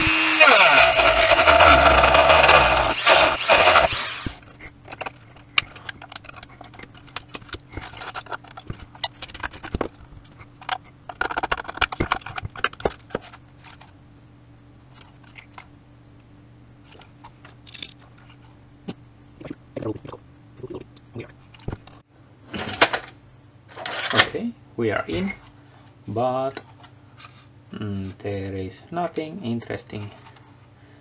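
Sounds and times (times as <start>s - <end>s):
power tool cutting plastic: 0.0s - 4.4s
faint steady hum: 0.0s - 31.0s
plastic clicking and scraping: 1.3s - 13.9s.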